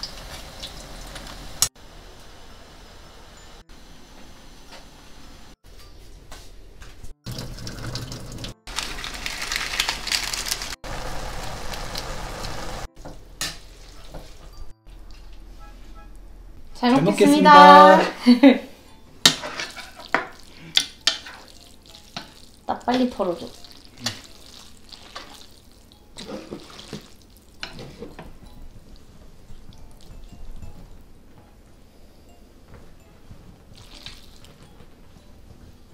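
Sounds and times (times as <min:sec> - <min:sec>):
water pouring and splashing: 0:07.2 - 0:12.9, 0:21.2 - 0:27.9, 0:33.7 - 0:34.6
foil sachet crinkling: 0:08.7 - 0:10.8
wet noodles squelching: 0:19.4 - 0:27.8, 0:33.8 - 0:34.6.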